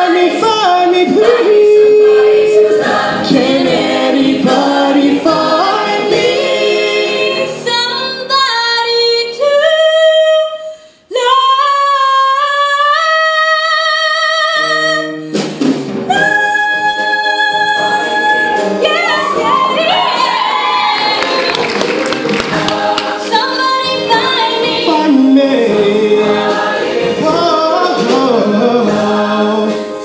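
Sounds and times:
choir singing: 0.0s - 8.3s, 19.0s - 29.8s.

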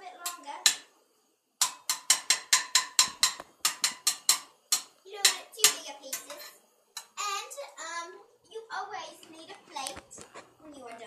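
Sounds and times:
utensil knocking on cookware: 0.2s - 0.9s, 1.6s - 7.2s.

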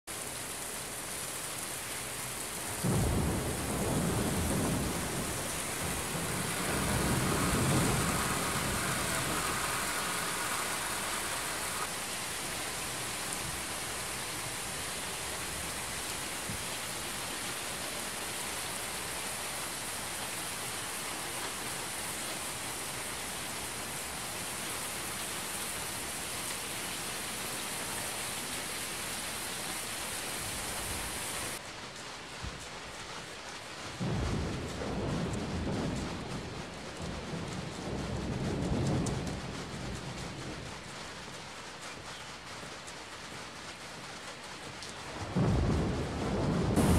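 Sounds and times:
heavy rain: 0.1s - 46.9s
thunder rumbling: 2.6s - 26.6s, 34.0s - 41.1s, 45.1s - 46.9s.

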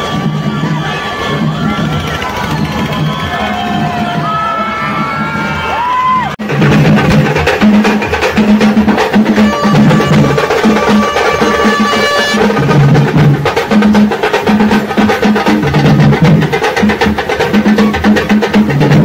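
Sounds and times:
street drum band playing: 0.0s - 19.0s
high held note: 9.4s - 12.6s.

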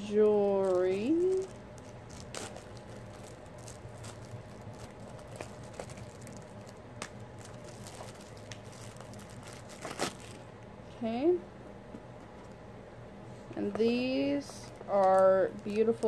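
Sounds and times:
steady low hum: 0.0s - 16.0s
plastic bag clicks and rustles: 0.4s - 10.4s, 14.6s - 16.0s.

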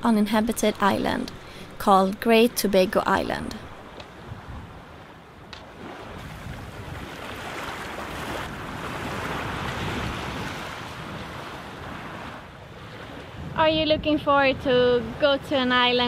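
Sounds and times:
water rushing along a hull: 0.7s - 16.0s
wind buffeting microphone: 3.6s - 16.0s.

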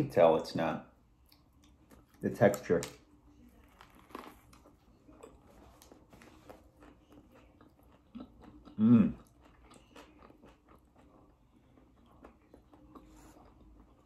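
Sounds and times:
person chewing food: 1.2s - 2.6s, 3.5s - 14.0s
person humming mmm: 8.7s - 9.3s.

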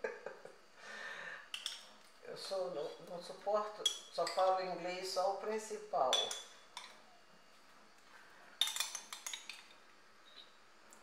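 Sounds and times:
metal spoon clinking on glass jar: 6.1s - 6.9s.

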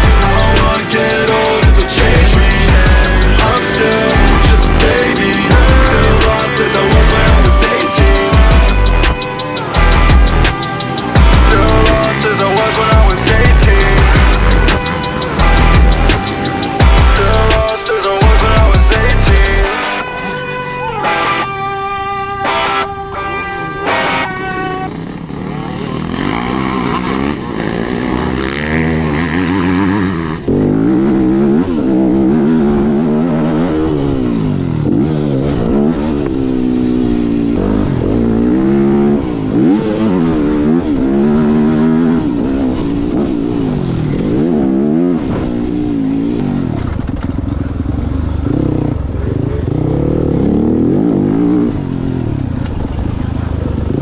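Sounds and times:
motocross bike engine revving: 0.0s - 54.0s.

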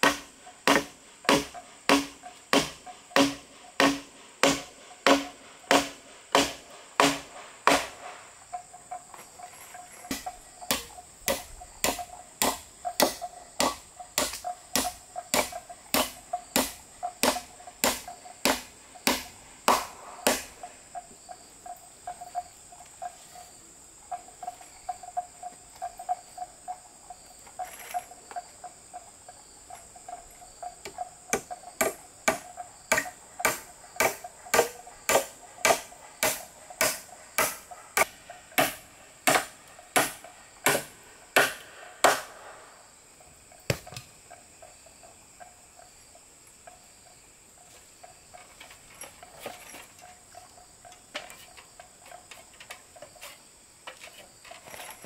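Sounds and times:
hand tool striking: 0.0s - 8.3s, 9.1s - 20.8s, 30.8s - 42.6s
high shrill of insects: 0.2s - 43.2s.

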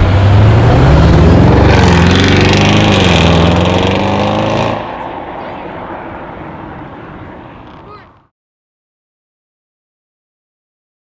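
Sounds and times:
car engine accelerating past: 0.0s - 7.7s
dull engine rumble: 0.0s - 8.3s.

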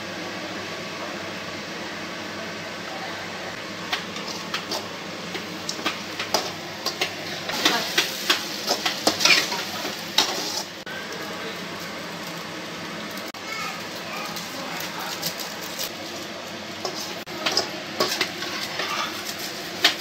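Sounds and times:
vegetables frying in oil: 0.0s - 20.0s.

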